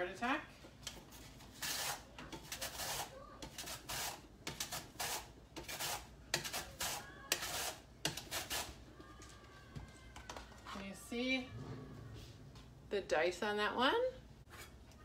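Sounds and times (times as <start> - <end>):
onion scraping over mandoline blade: 1.1 - 8.8.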